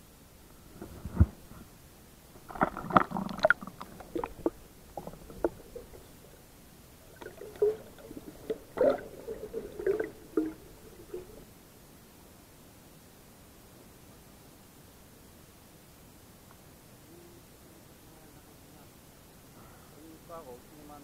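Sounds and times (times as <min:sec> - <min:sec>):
water splashing and gurgling: 0:02.4 - 0:11.5.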